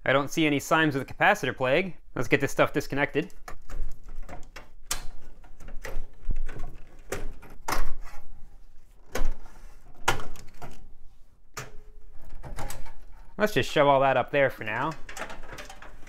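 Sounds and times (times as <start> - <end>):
cable and sheet-metal handling: 3.0 - 13.4, 14.6 - 16.0.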